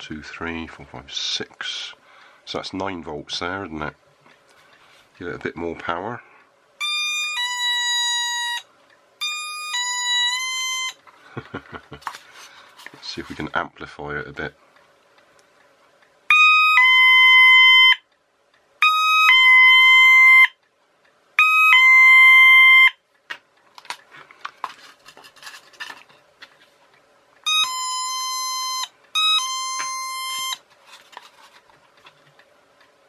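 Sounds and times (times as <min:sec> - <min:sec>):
two-tone doorbell chime: 0:09.2 - 0:11.0, 0:27.5 - 0:30.6
handling rustle: 0:23.7 - 0:26.9, 0:30.6 - 0:32.4.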